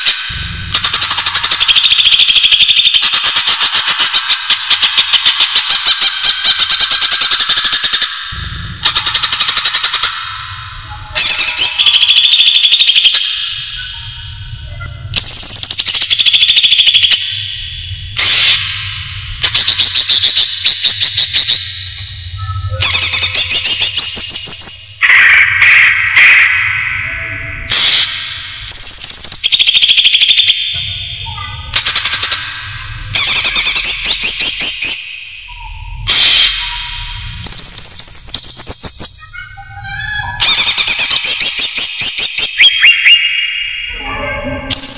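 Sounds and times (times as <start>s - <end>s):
bird chattering trill: 0.0s - 17.6s, 19.4s - 44.1s.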